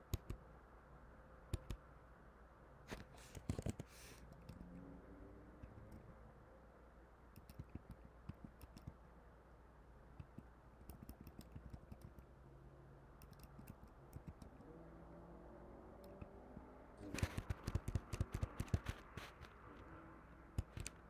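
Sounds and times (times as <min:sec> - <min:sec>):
keyboard keystrokes: 0:00.0 - 0:00.4, 0:01.5 - 0:01.8, 0:07.4 - 0:09.0, 0:10.2 - 0:12.2, 0:17.0 - 0:19.2, 0:20.5 - 0:21.0
low background hum: 0:00.0 - 0:21.0.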